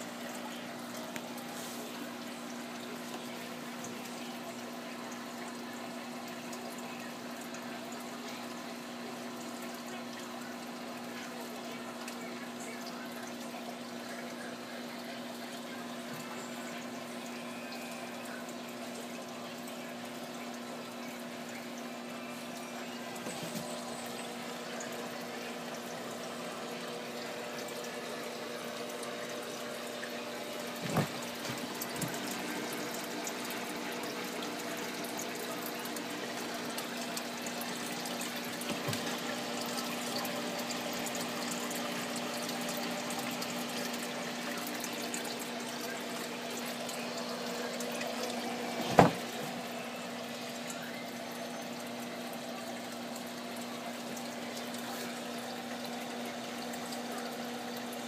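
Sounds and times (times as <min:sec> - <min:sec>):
pump hum: 0:00.0 - 0:58.0
water running and splashing: 0:00.0 - 0:58.0.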